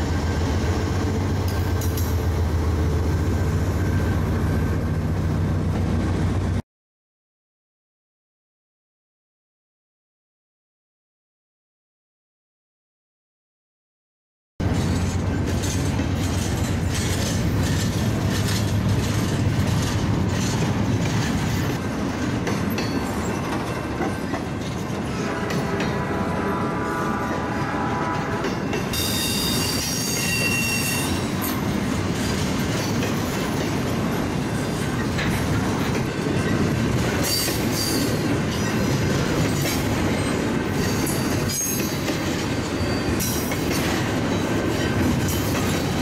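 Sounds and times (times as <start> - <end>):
freight train wheels rumbling: 0.0 - 6.6, 14.6 - 46.0
high wheel squeal: 28.9 - 31.6.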